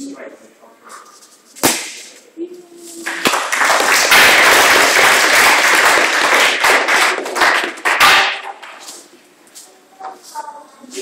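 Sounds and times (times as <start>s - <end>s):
audience applauding: 3.1s - 8.2s.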